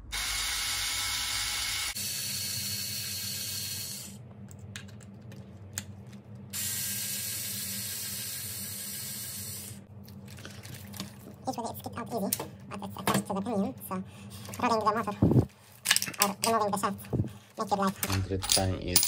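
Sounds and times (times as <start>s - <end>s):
cordless electric screwdriver whirring: 0.1s - 4.2s.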